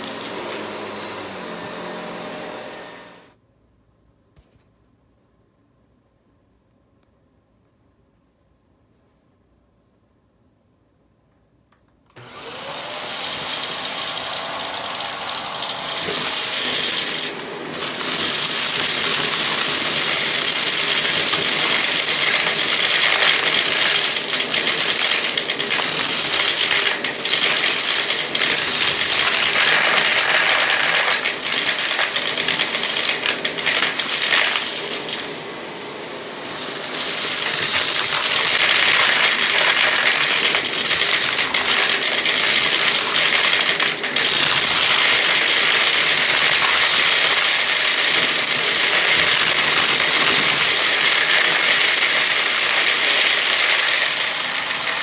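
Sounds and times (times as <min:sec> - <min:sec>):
vacuum cleaner motor: 0:00.0 - 0:03.4, 0:12.1 - 0:55.0
debris rattling up vacuum tube: 0:13.3 - 0:35.3, 0:36.4 - 0:55.0.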